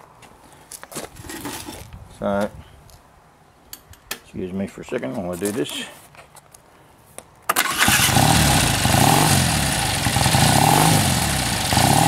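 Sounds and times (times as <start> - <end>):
motorcycle electric starter cranking: 7.5 - 12.0
motorcycle engine revving: 7.6 - 12.0.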